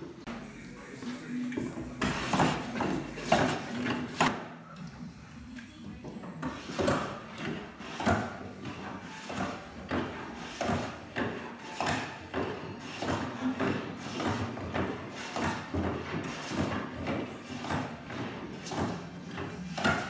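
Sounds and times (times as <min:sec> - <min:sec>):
hand plane shaving wood: 0:06.5 - 0:20.0.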